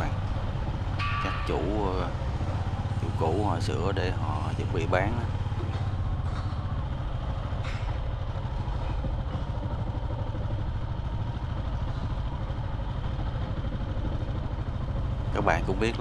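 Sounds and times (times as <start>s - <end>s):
motorbike engine running: 0.0s - 16.0s
road and wind noise: 0.0s - 16.0s.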